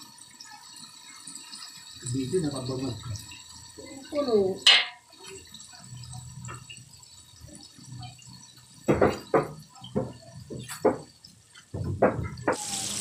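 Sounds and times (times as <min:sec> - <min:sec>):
oil bubbling while deep-frying: 0:00.0 - 0:13.0
sharp pops and crackles of oil: 0:04.6 - 0:05.4, 0:08.5 - 0:12.6.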